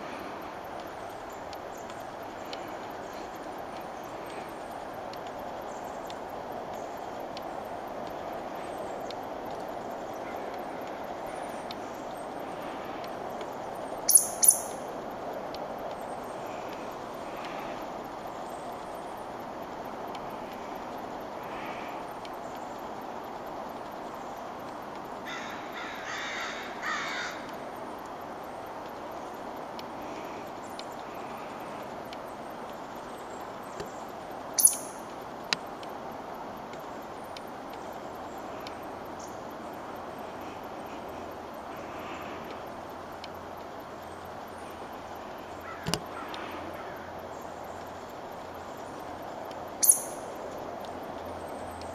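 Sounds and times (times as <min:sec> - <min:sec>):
background hiss: 0:00.0 - 0:51.9
outdoor background noise: 0:00.0 - 0:51.9
harsh raspy bird calls: 0:25.3 - 0:27.4, 0:45.6 - 0:47.1.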